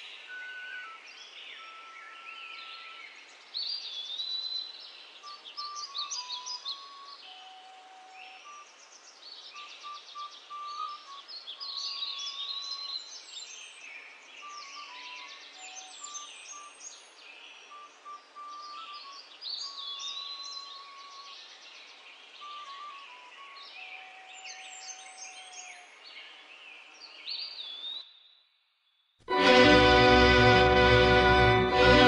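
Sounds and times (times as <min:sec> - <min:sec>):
small birds chirping and trilling: 0:00.0 - 0:28.5
simple melody of held notes: 0:29.3 - 0:32.0.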